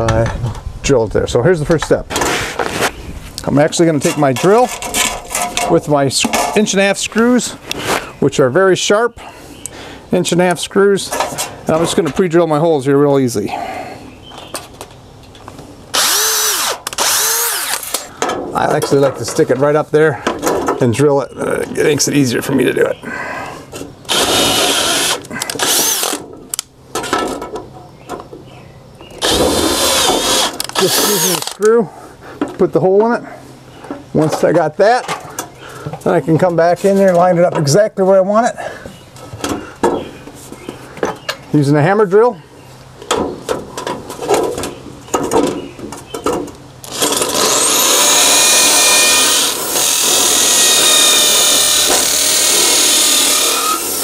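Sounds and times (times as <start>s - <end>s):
cordless drill driving screw into metal: 15.9s - 18.1s, 24.1s - 26.2s, 29.2s - 31.7s, 46.9s - 54.0s.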